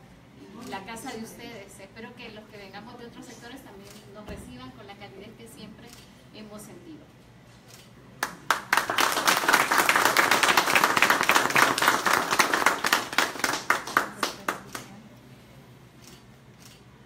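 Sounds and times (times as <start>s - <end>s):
small group applauding: 8.2s - 15.0s.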